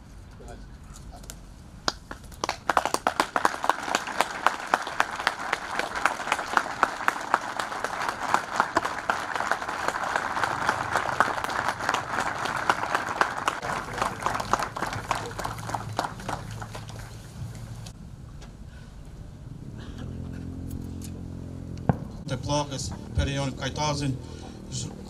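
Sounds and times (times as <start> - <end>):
crowd applauding: 1.9 - 17.3.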